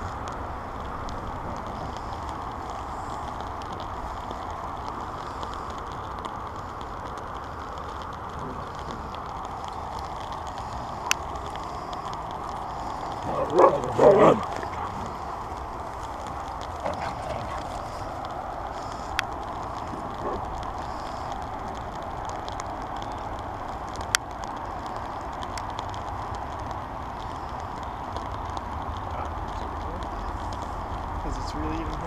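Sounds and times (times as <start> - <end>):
dog barking: 13.3 - 14.5, 20.2 - 20.5.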